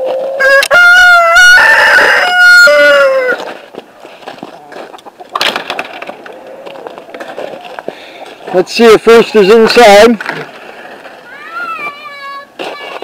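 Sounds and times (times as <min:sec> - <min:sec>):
rooster crowing: 0:00.3 - 0:03.5.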